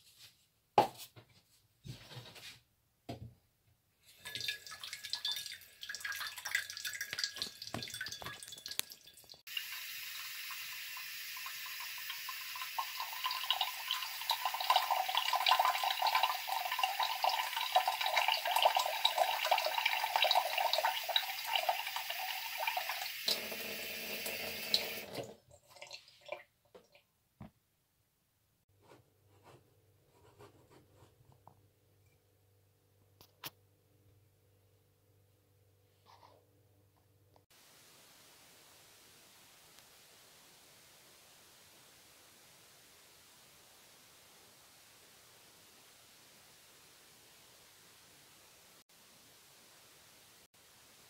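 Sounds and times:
tap water splashing into saucepan: 4.2s - 23.4s.

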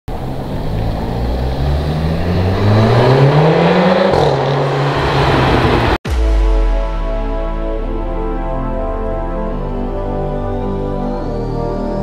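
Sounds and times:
car engine revving: 0.1s - 6.1s
soft music: 6.1s - 12.0s.

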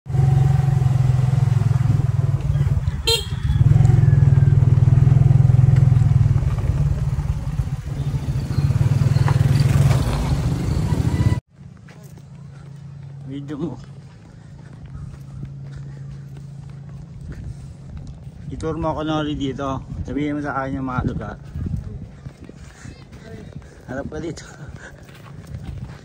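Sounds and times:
small motorcycle engine running: 0.1s - 11.4s
short horn beep: 3.0s - 3.7s
wind rumble on microphone: 14.8s - 26.0s.

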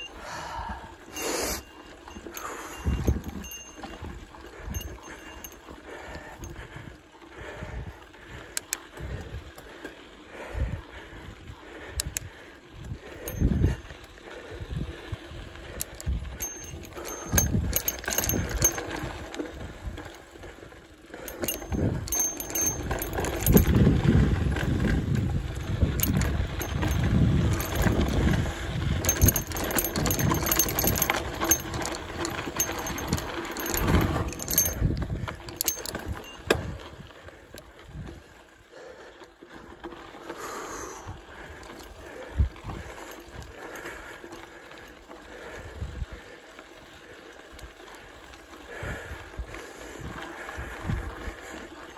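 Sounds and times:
bike rattling over bumps: 0.0s - 51.9s
wind buffeting microphone: 2.1s - 9.5s, 10.4s - 20.1s, 21.3s - 38.3s.

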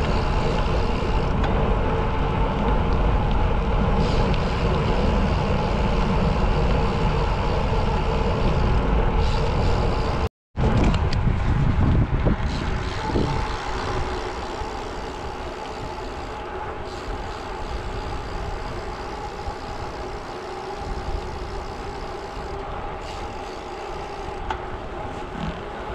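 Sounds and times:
tyres rolling on asphalt: 0.0s - 25.9s
wind on microphone: 0.0s - 25.9s.

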